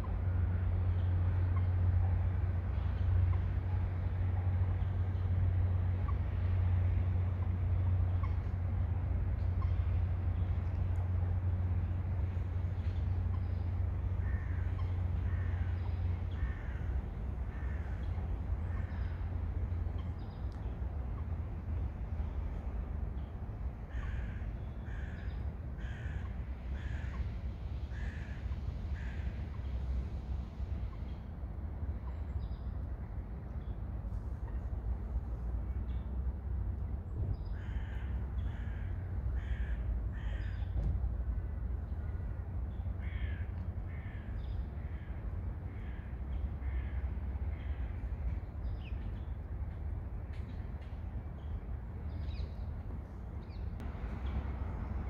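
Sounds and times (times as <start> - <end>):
crow cawing: 14.2 - 15.7, 16.4 - 16.9, 23.9 - 25.2, 25.8 - 26.2, 26.8 - 27.2, 27.9 - 28.4, 37.6 - 40.5, 43.0 - 44.3.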